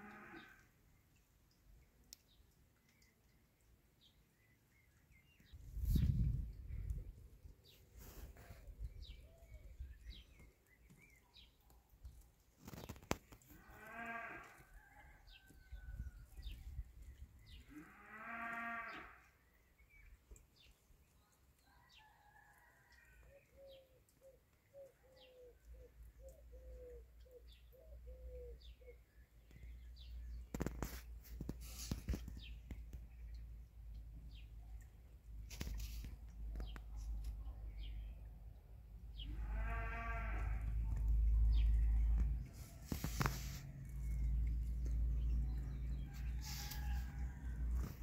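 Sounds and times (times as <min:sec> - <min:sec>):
drawn-out animal calls: 0:39.2 - 0:44.3
rustling: 0:42.2 - 0:44.5.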